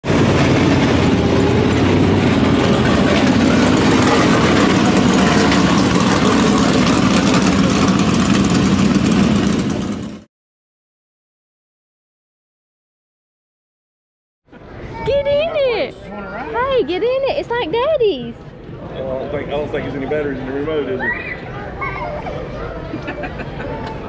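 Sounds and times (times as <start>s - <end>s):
race car engines running: 0.0s - 10.2s.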